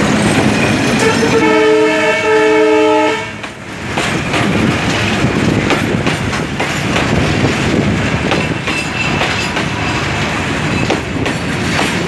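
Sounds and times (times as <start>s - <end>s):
train wheels clicking over rail joints: 0.0s - 1.4s, 3.3s - 12.0s
locomotive horn chord: 1.0s - 3.4s.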